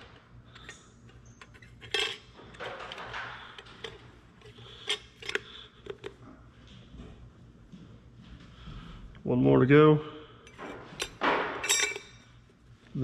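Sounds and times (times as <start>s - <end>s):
metal plates clinking: 1.4s - 5.4s, 10.5s - 12.3s.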